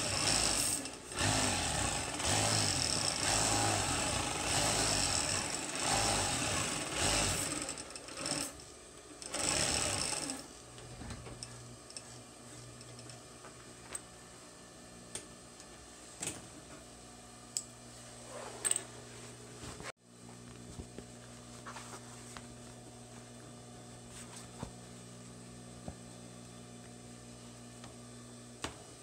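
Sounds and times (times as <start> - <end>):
sewing machine motor humming: 0.0 - 8.6, 9.2 - 10.5.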